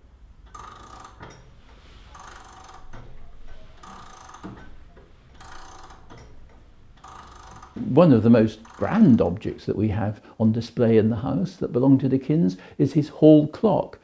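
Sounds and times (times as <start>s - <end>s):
clock winding ratchet clicking: 0.4s - 1.5s, 2.1s - 4.7s, 5.3s - 7.8s, 8.5s - 9.2s.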